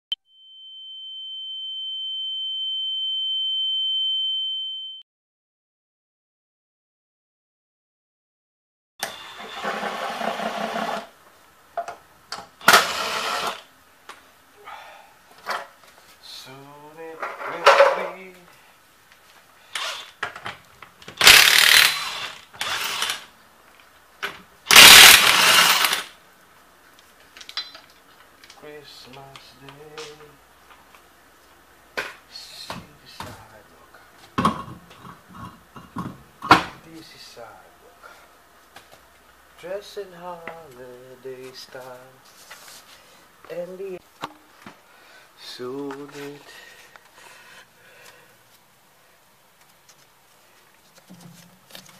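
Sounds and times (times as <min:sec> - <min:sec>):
impact wrench hammering: 0:21.2 - 0:22.3, 0:24.7 - 0:26.1.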